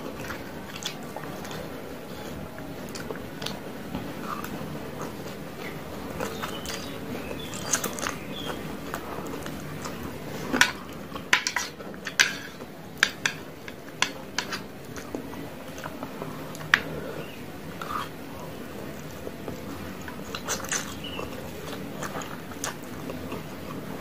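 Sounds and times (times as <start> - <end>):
noodles slurped and chewed: 0.0 - 12.7, 13.4 - 24.0
chopsticks striking metal tray: 10.6 - 13.4.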